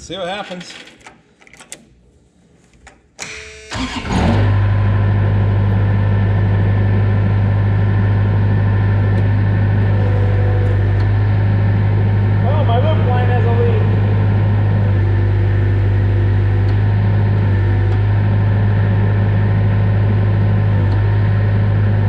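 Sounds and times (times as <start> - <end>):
skid steer engine starting and running: 3.2 - 22.0
click: 17.9 - 18.1.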